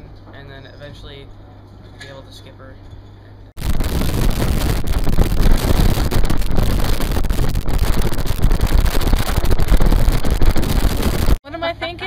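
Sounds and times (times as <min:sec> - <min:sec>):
wind buffeting microphone: 0:03.6 - 0:11.4.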